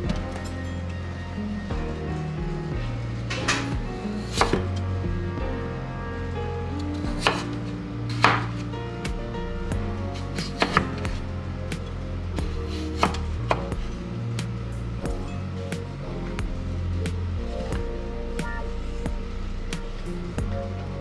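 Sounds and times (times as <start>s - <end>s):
background music: 0.0s - 21.0s
knife slicing potato on cutting board: 7.0s - 8.6s, 12.7s - 13.6s.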